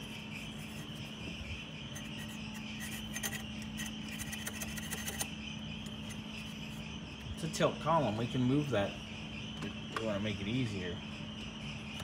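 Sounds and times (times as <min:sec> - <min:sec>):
crickets chirring: 0:00.0 - 0:12.0
wires and small parts clicking: 0:02.0 - 0:06.5.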